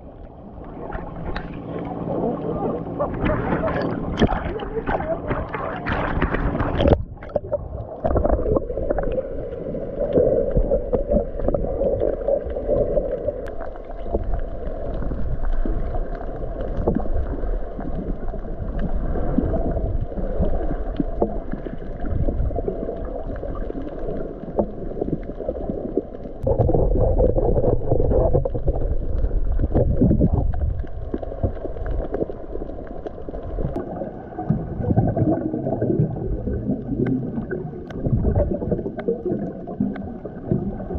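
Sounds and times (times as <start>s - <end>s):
muffled underwater water sloshing: 0.0s - 40.9s.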